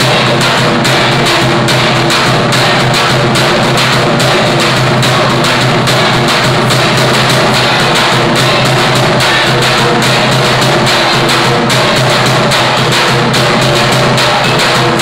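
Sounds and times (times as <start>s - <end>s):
large drum beaten loudly: 0.0s - 15.0s.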